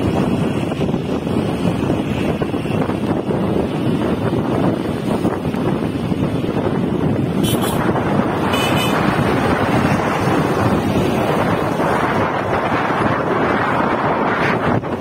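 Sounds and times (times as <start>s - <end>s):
road noise: 0.0s - 15.0s
wind buffeting microphone: 0.0s - 15.0s.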